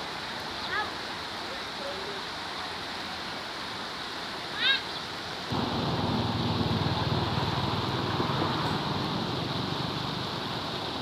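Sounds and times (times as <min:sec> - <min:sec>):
river water flowing: 0:00.0 - 0:11.0.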